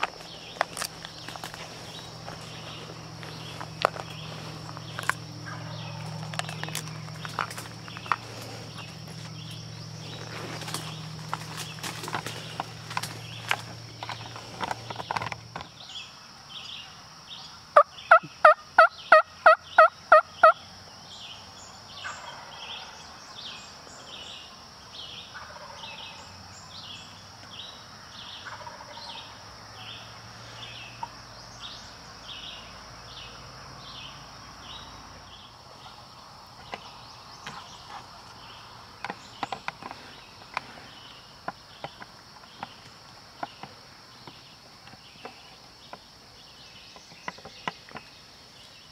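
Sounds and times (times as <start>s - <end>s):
insect hum with chirping: 0.0s - 48.9s.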